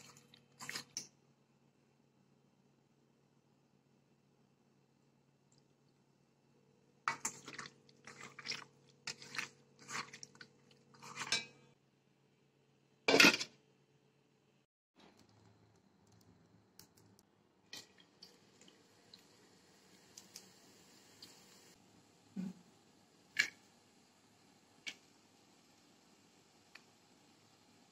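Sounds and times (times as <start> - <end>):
wet squelches of chicken: 7.1 - 11.1
oil sizzling: 17.7 - 21.8.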